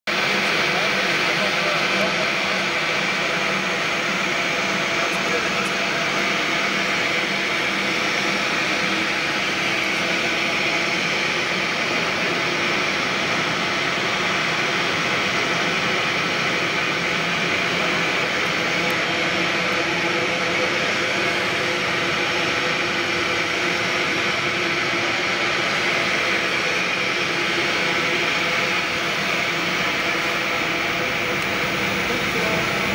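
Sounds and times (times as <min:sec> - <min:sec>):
high machine whine: 0:00.1 - 0:32.9
steady hum tones: 0:00.1 - 0:32.9
machinery rushing hiss: 0:30.0 - 0:32.9.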